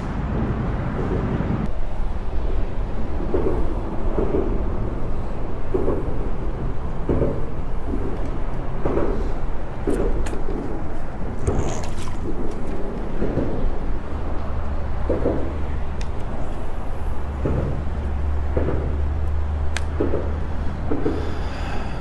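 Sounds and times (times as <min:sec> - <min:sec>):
wind rumble on microphone: 0:00.0 - 0:22.0
water lapping against boat hull: 0:09.9 - 0:19.2.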